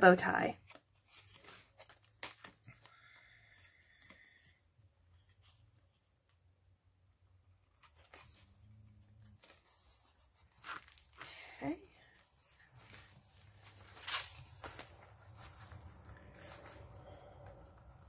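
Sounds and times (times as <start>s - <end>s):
paper rustling and clicking: 0.7s - 2.9s, 12.5s - 16.8s.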